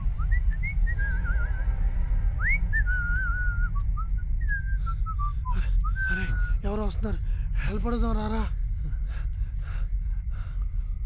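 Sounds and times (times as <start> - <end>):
steady low rumble: 0.0 - 11.0
person whistling a tune: 0.2 - 1.7, 2.4 - 6.6.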